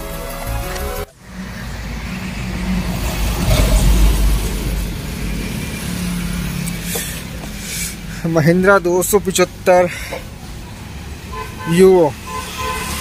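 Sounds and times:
background music: 0.0 - 1.1.

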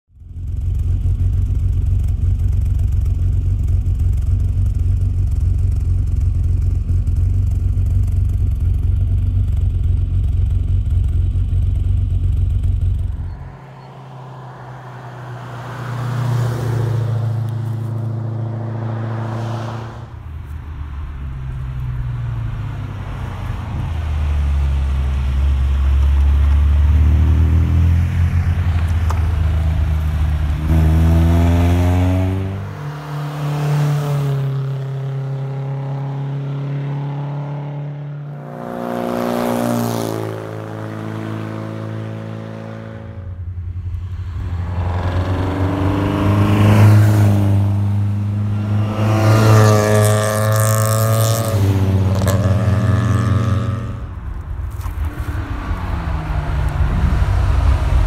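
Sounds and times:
rally cars driving past: 12.4 - 58.0
steady low rumble: 43.3 - 45.8, 54.0 - 58.0.

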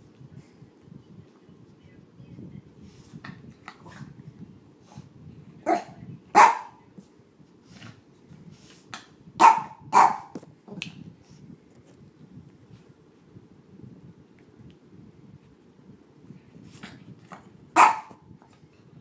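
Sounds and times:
small dog barking: 5.6 - 6.8, 9.4 - 10.3, 17.8 - 18.2.

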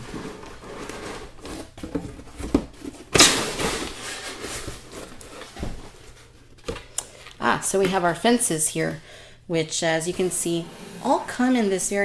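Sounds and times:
cardboard scraping against cardboard: 0.0 - 3.0, 10.2 - 11.9.

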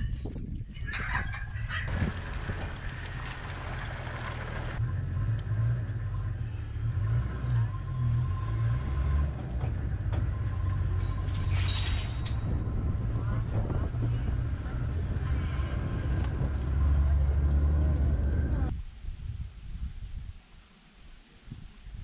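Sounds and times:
engine low rumble: 0.2 - 19.5.

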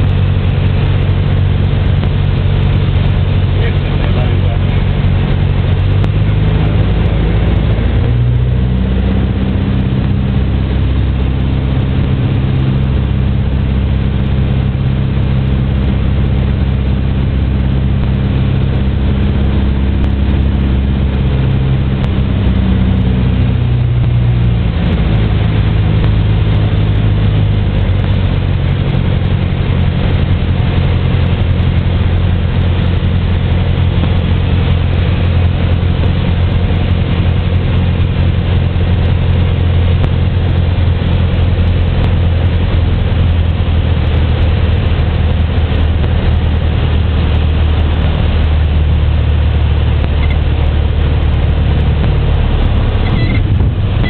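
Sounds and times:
propeller plane engine droning: 0.0 - 54.0.

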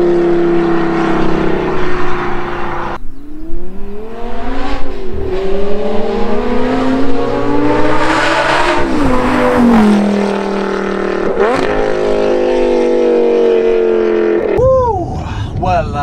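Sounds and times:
sports car engine accelerating: 0.0 - 14.6.

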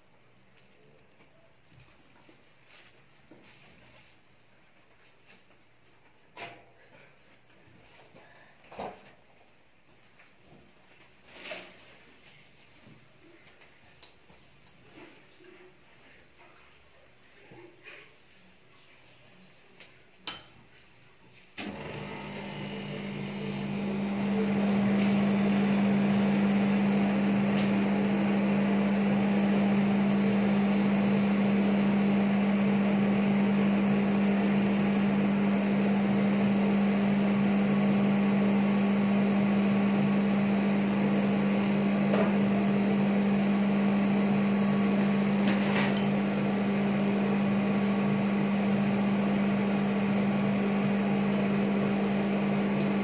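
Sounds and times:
refrigeration unit humming: 21.6 - 53.0.

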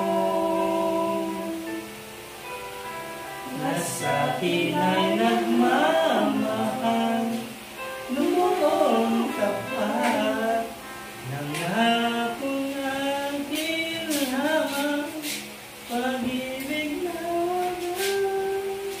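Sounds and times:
person singing long notes: 0.0 - 2.0, 3.4 - 19.0.

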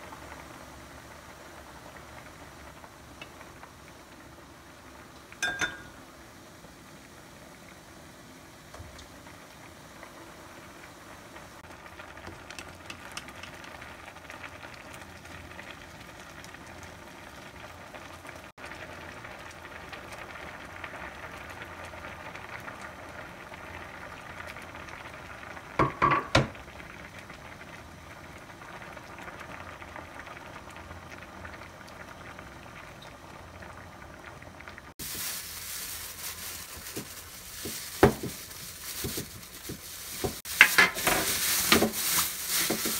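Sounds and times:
stew bubbling in a pot: 0.0 - 42.9
plastic bag rustling: 35.0 - 42.9.

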